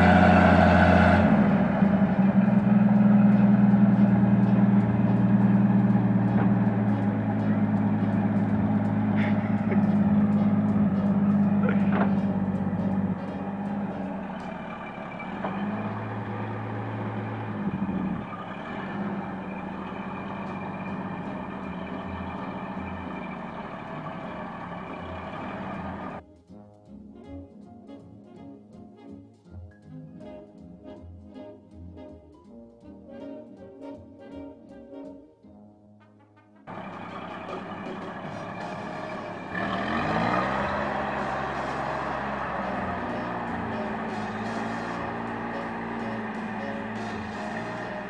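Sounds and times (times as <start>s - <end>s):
truck engine running: 0.0s - 26.2s, 36.7s - 48.0s.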